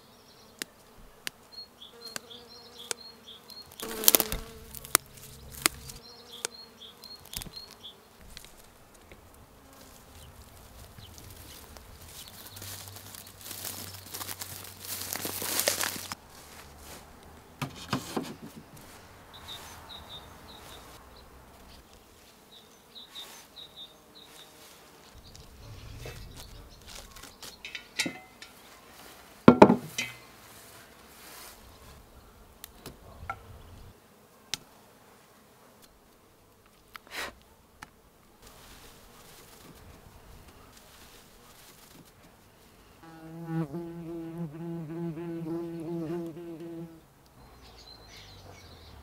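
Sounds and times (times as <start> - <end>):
flying insect buzzing: 0.0 - 17.2, 18.4 - 28.0, 42.8 - 47.1
metal pot handle clanking: 27.7 - 28.5
scattered knocks: 29.5 - 30.0.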